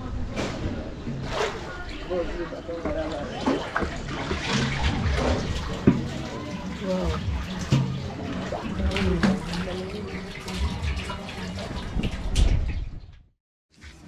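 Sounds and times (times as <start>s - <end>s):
splashes and knocks: 2.8s - 13.0s.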